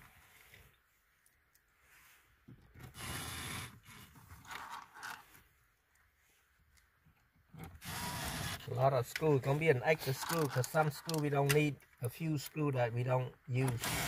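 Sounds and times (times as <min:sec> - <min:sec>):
cordless drill running: 0:02.8 - 0:04.1, 0:07.8 - 0:08.7, 0:13.8 - 0:14.0.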